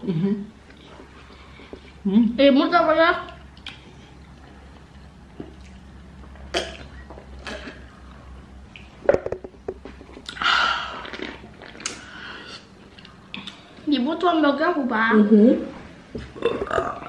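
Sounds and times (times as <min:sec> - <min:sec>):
sharp gulp: 0:06.5 - 0:07.8
breathy exhale: 0:12.0 - 0:12.7.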